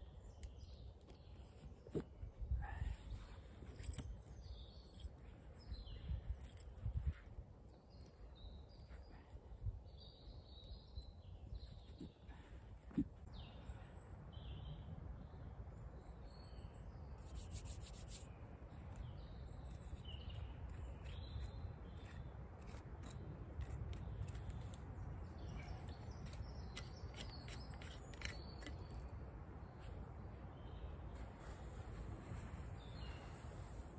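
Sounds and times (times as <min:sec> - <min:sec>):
small birds chirping: 0:00.0 - 0:33.9
hands rubbing and scraping gear: 0:17.2 - 0:18.3.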